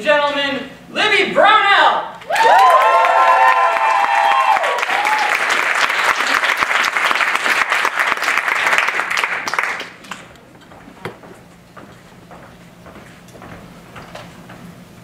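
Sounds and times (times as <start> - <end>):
whoops: 2.2 - 5.6
audience applauding: 2.3 - 10.3.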